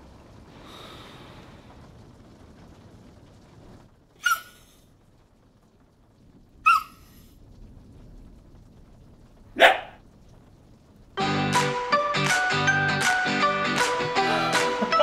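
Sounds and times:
dog barking high: 0:04.2 - 0:04.6, 0:06.6 - 0:07.0, 0:09.6 - 0:10.0.

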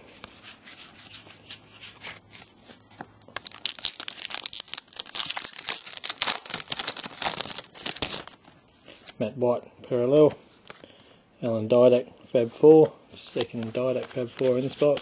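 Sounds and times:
cards rustling: 0:00.1 - 0:09.2, 0:12.6 - 0:15.0
plastic wrapper crinkling and tearing: 0:02.9 - 0:09.2.

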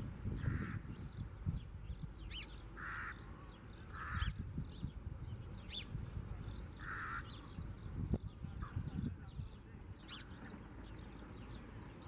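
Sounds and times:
small birds chirping: 0:00.0 - 0:12.0
crow cawing: 0:02.8 - 0:03.2, 0:03.9 - 0:04.4, 0:06.8 - 0:07.4.

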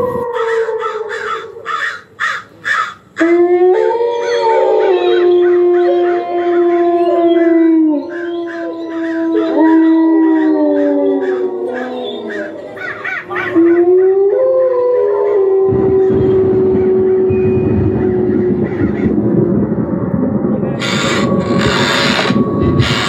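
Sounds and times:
dogs howling: 0:00.0 - 0:02.1, 0:02.8 - 0:19.9, 0:20.8 - 0:23.0
pulsing sound: 0:16.2 - 0:23.0.

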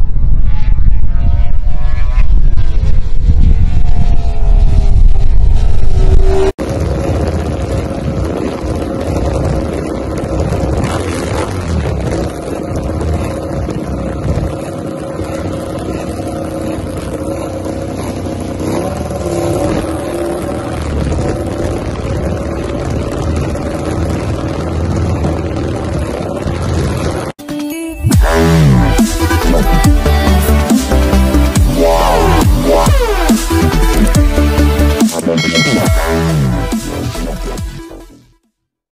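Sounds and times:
motorcycle passing at speed: 0:00.0 - 0:27.3.

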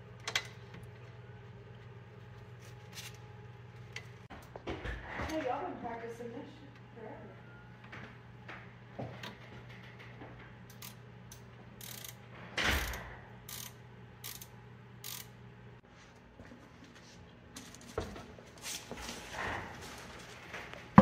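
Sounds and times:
ratcheting wrench clicking: 0:10.7 - 0:12.2, 0:12.8 - 0:15.4.

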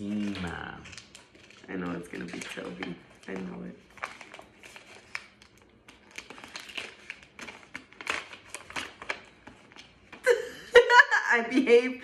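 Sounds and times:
paper crinkling and rustling: 0:00.0 - 0:10.3.

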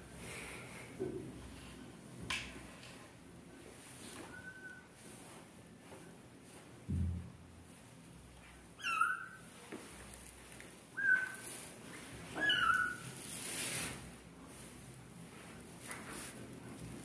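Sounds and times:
soft rustle: 0:02.6 - 0:06.9, 0:09.5 - 0:17.0.

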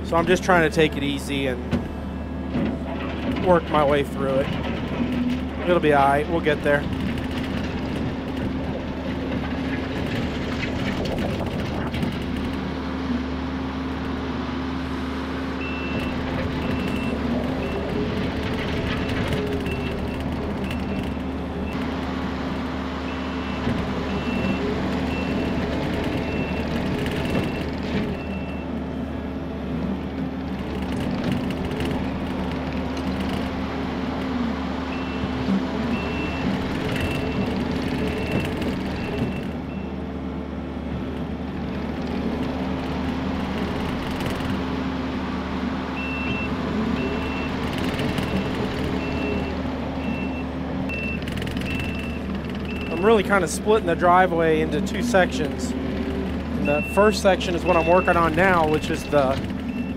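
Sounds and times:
diesel engine running: 0:00.0 - 0:59.9
backup alarm beeping: 0:23.1 - 0:25.6, 0:46.0 - 0:47.6, 0:48.2 - 0:53.1, 0:56.6 - 0:59.9.

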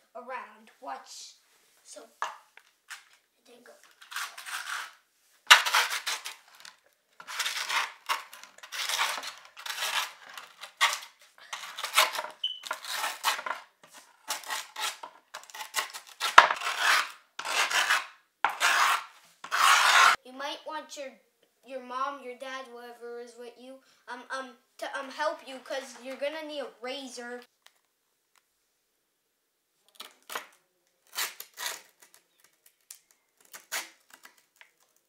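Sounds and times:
metal scraping grip tape: 0:03.8 - 0:20.2, 0:29.9 - 0:35.0.

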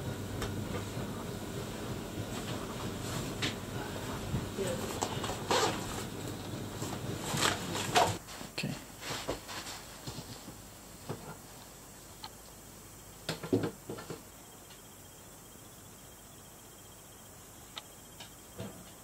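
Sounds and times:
cooler bag rustling and clicking: 0:04.6 - 0:08.2
faint ticks: 0:17.7 - 0:18.4.

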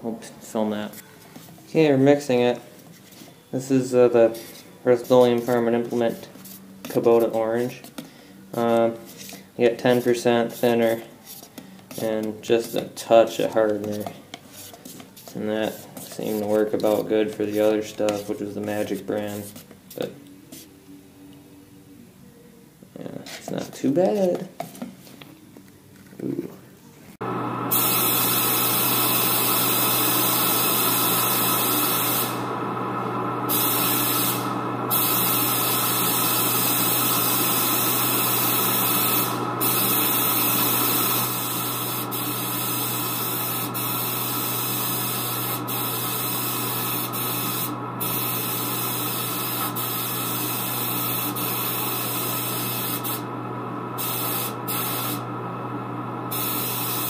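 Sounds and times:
spray gun hissing: 0:27.7 - 0:32.6, 0:33.4 - 0:53.3, 0:54.0 - 0:55.3, 0:56.3 - 0:57.0.

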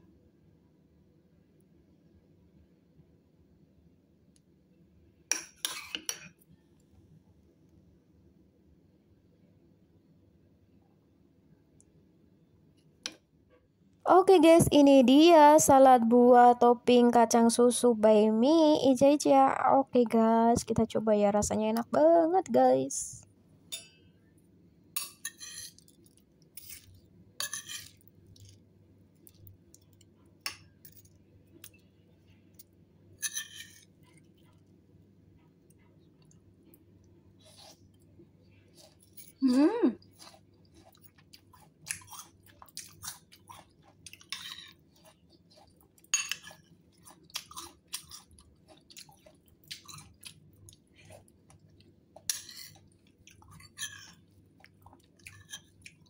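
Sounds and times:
wet chewing with crunch: 0:35.4 - 0:39.4, 0:40.0 - 0:56.0
person humming: 0:39.4 - 0:40.0.

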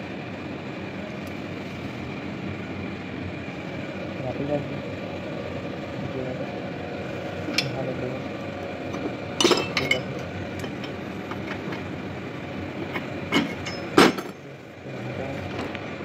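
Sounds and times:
steady background hum: 0:00.0 - 0:16.0
metal parts clinking: 0:09.4 - 0:11.8, 0:13.3 - 0:14.4.

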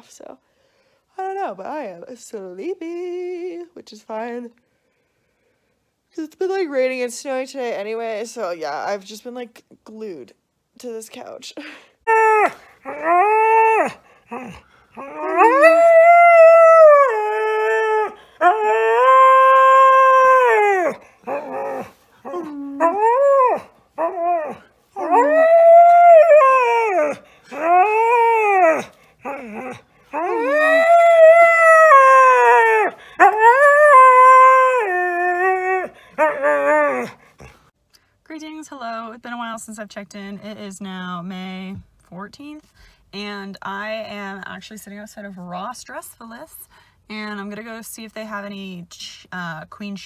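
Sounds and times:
husky howling: 0:12.2 - 0:37.2.

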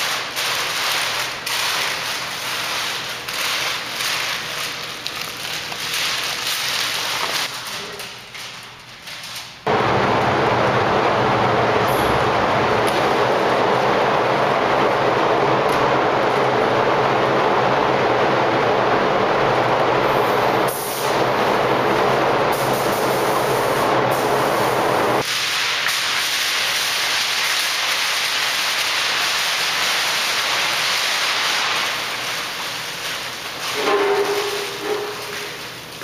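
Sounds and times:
ventilation air rushing: 0:09.6 - 0:36.0
low hum: 0:09.7 - 0:25.2.

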